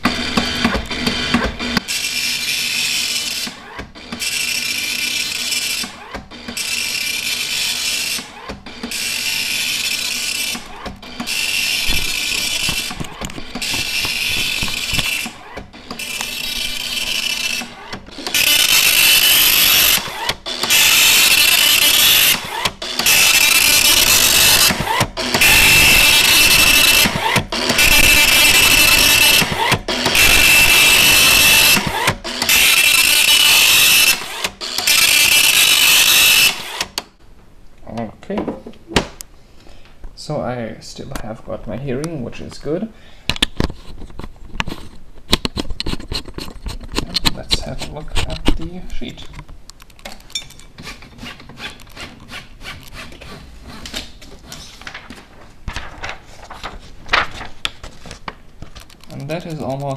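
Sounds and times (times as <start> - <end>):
dot-matrix printer printing: 0.0 - 37.1.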